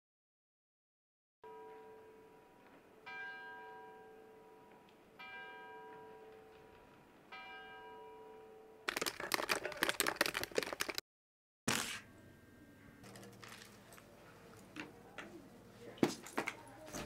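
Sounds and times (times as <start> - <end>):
rapid loud clicking: 8.9 - 11.0.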